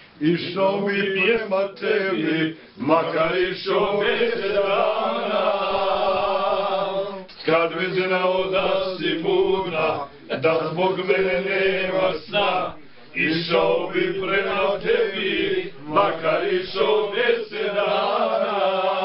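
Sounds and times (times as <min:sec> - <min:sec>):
men singing unaccompanied: 0:00.2 - 0:19.0.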